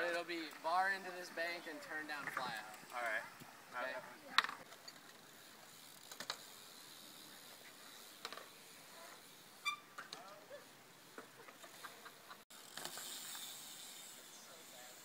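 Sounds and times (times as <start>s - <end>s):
bike rolling on concrete: 0.0s - 15.0s
steady hiss: 10.7s - 15.0s.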